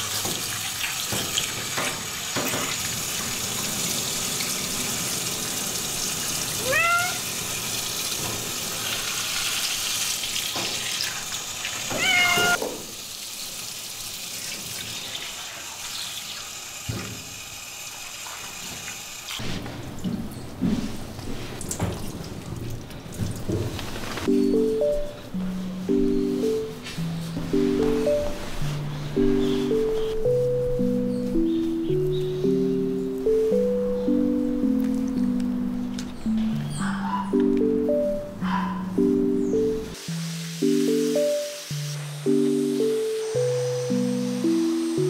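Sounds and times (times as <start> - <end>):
shower hose water spraying: 0.0 - 19.7, 39.9 - 45.0
cat meowing: 6.6 - 7.2, 11.9 - 12.6.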